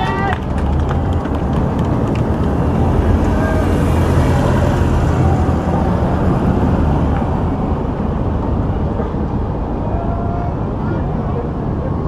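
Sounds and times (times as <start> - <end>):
minivan driving past: 0.0 - 8.8
steady road noise: 0.0 - 12.0.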